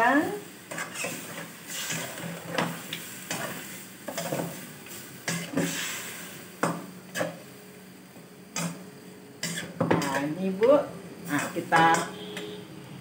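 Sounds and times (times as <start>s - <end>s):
meat sizzling: 0.0s - 10.5s
metal spatula scraping a wok: 0.7s - 4.6s, 9.4s - 10.3s, 11.2s - 12.4s.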